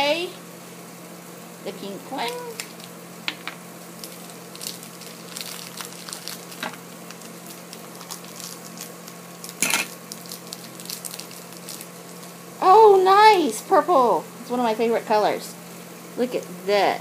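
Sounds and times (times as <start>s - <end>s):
packaging crackle: 2.3s - 12.5s
plastic packaging clicks and crinkling: 4.0s - 11.9s.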